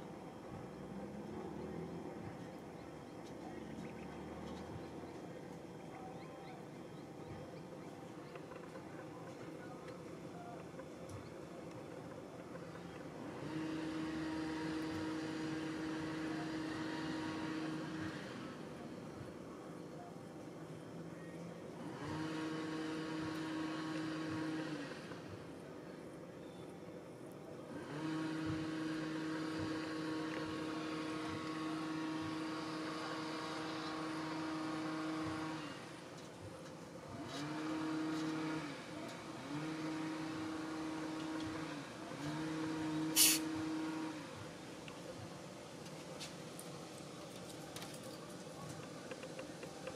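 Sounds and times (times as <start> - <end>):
steady machine hum: 0.0 - 49.9
beetle buzzing hum: 42.3 - 44.0.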